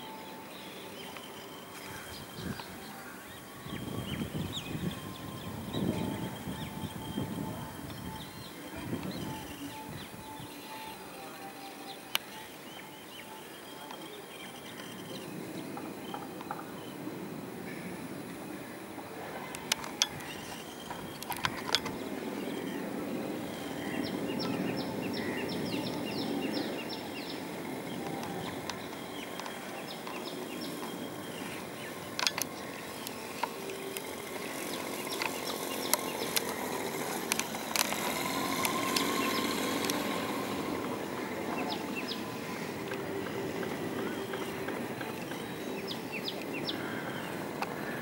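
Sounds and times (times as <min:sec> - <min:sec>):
high ticks: 0:27.4 - 0:48.0
sharp clicks: 0:34.8 - 0:40.7.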